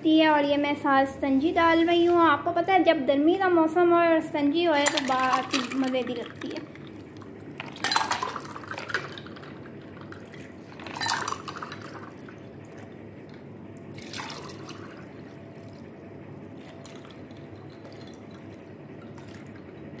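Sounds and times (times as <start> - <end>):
low background hum: 0.0 - 20.0
drink pouring into glasses: 4.8 - 20.0.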